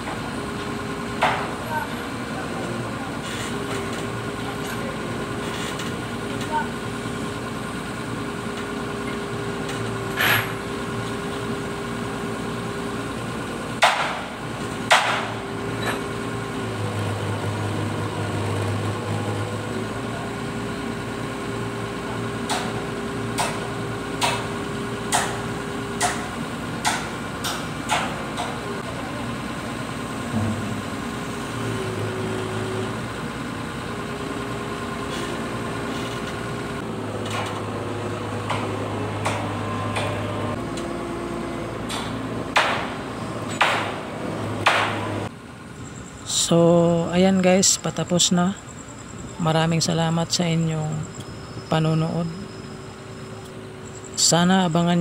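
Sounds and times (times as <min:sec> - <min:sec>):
crane engine humming: 0:00.0 - 0:55.0
sharp metal knocks: 0:13.8 - 0:16.0, 0:22.5 - 0:24.5, 0:25.1 - 0:28.6, 0:41.9 - 0:45.1.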